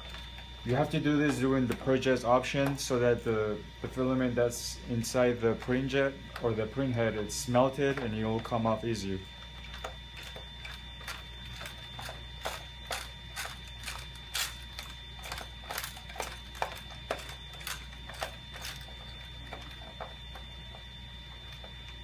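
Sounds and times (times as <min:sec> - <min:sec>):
steady low hum: 0:00.0 - 0:22.0
gear wheel clicking: 0:09.8 - 0:19.8.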